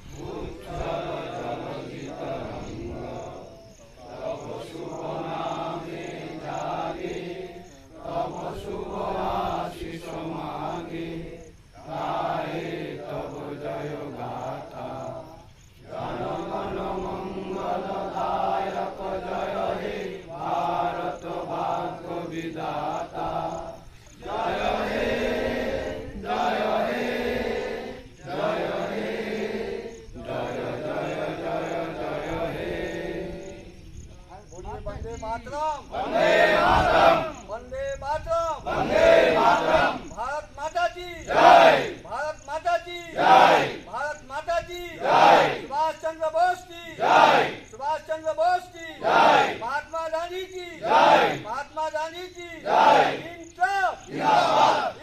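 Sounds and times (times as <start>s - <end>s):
men singing in unison: 0.0s - 34.3s, 35.8s - 37.5s, 38.6s - 42.5s, 43.1s - 44.0s, 54.0s - 55.0s.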